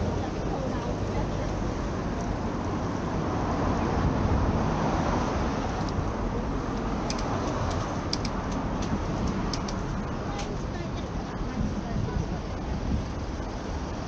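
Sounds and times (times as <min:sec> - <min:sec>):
road traffic rushing: 0:00.0 - 0:14.0
light clicks: 0:06.8 - 0:09.8.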